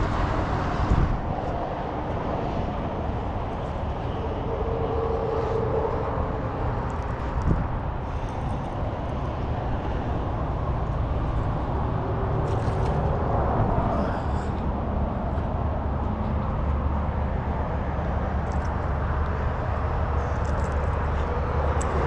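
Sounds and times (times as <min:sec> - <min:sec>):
wind on microphone: 0:00.0 - 0:16.9
road traffic rumble: 0:00.0 - 0:22.0.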